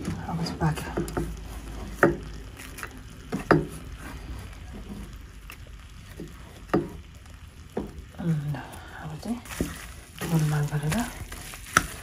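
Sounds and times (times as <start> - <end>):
pork frying in a pan: 0.0 - 12.0.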